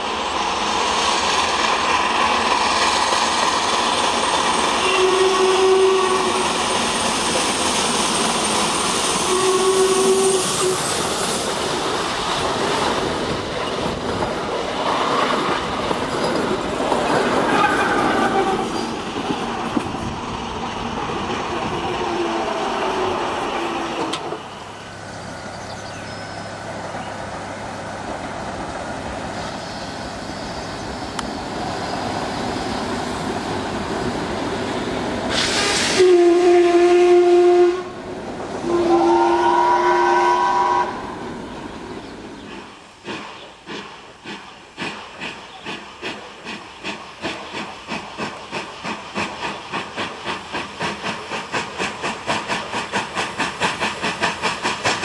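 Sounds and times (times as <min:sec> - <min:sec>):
steam hissing: 0:00.0 - 0:26.7, 0:28.8 - 0:55.0
train rolling noise: 0:00.0 - 0:55.0
steam locomotive exhaust beat: 0:00.3 - 0:25.1, 0:29.3 - 0:41.4, 0:42.4 - 0:55.0
steam whistle blasts: 0:04.8 - 0:06.6, 0:09.2 - 0:10.9, 0:35.4 - 0:38.0, 0:38.6 - 0:41.2.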